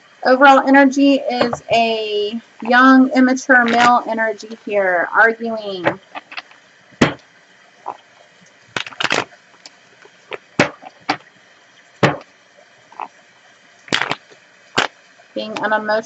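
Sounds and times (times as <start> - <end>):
cards being shuffled: 8.8 - 9.3.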